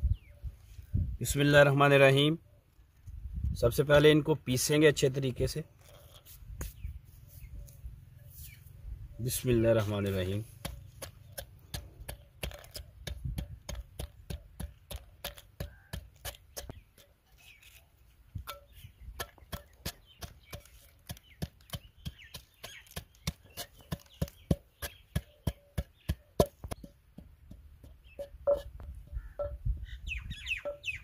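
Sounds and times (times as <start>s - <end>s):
wooden pestle pounding in clay bowl: 10.5s - 17.1s, 18.4s - 29.7s.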